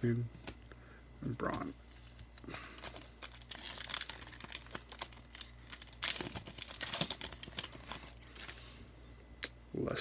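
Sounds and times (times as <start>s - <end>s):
card pack wrapper tearing and crinkling: 2.3s - 8.6s.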